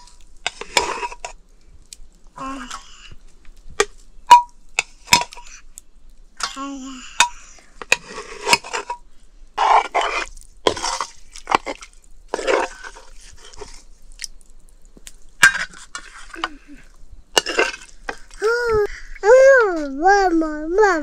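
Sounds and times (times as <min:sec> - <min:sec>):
metal dishes and utensils clinking: 0:15.4 - 0:16.6, 0:17.4 - 0:18.2.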